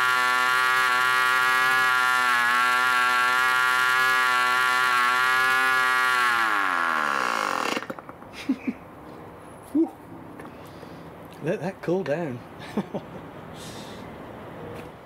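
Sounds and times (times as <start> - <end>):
model engine running: 0.0 - 8.0.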